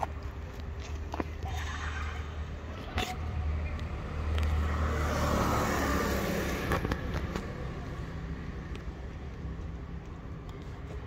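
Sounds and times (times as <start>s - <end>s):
car driving past: 4.0s - 7.0s.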